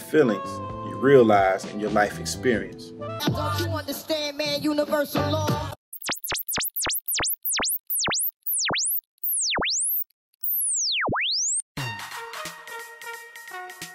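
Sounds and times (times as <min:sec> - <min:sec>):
electronic tone sweeping: 0:06.0 - 0:11.6.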